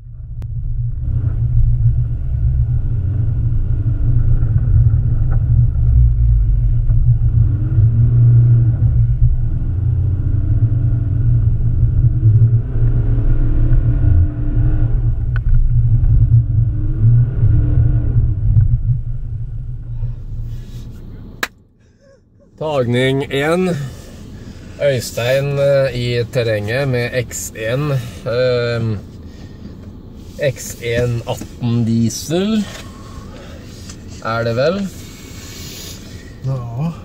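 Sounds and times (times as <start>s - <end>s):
diesel car engine revving: 0.0s - 21.5s, 22.5s - 37.0s.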